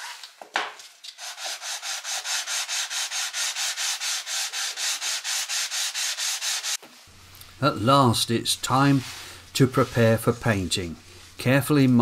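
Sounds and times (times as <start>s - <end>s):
sanding strokes on abrasive paper: 1.2s - 6.8s, 8.6s - 11.6s.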